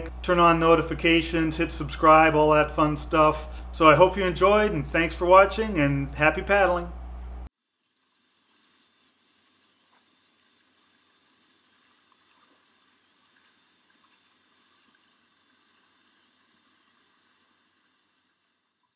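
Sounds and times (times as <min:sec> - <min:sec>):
bird chirping rapidly: 0:08.0 - 0:14.7, 0:15.3 - 0:18.9.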